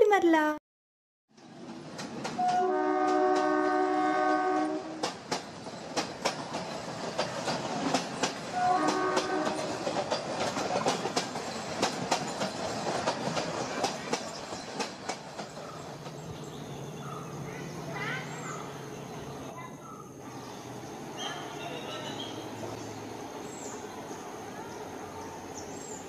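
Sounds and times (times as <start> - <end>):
wheels clacking over rail joints: 1.4 - 3.7, 4.6 - 18.8
train horn: 2.4 - 5.1, 8.5 - 9.8.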